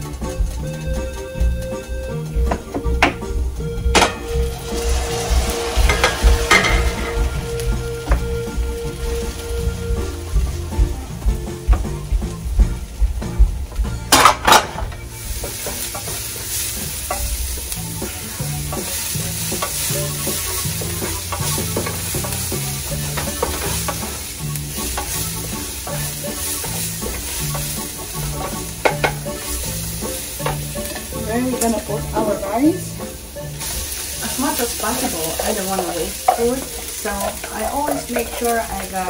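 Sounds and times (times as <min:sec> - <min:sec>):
oil sizzling in a skillet: 0:00.0 - 0:39.0
wooden spatula scraping pan: 0:14.9 - 0:32.8, 0:33.6 - 0:39.0.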